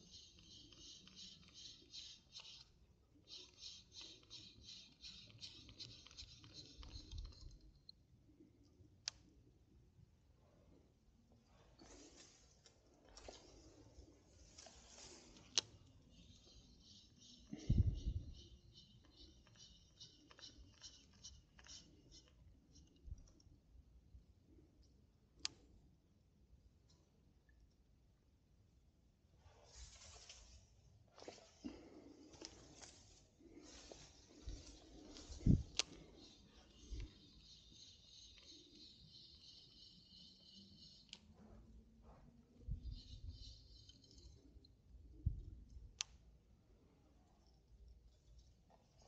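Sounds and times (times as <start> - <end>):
fishing reel ticking: 0.0 - 7.8, 15.4 - 23.0, 34.4 - 41.2.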